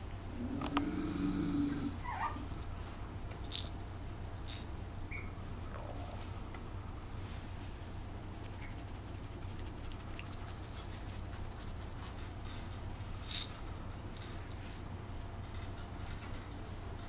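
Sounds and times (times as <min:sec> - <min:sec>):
steady low hum: 0:00.0 - 0:17.0
puppy scratching on towel: 0:07.2 - 0:12.4.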